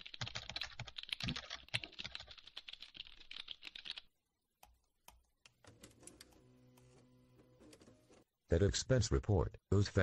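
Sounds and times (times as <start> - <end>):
typing on a computer keyboard: 0.0 - 6.4.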